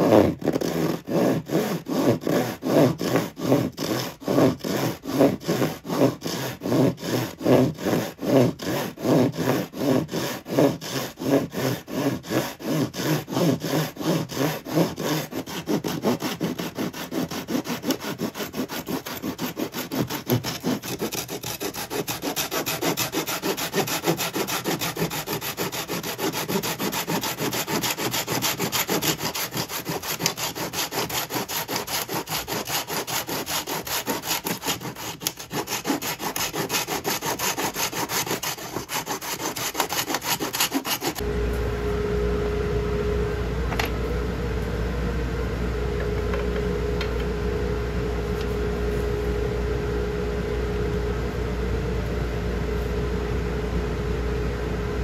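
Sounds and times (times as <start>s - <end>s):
hand saw cutting wood: 0.0s - 41.2s.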